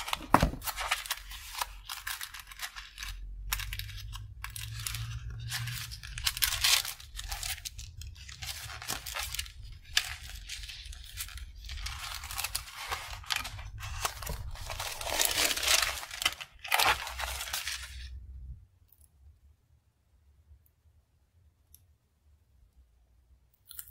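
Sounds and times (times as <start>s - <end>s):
thin paper rustling and crinkling: 0.0s - 18.2s.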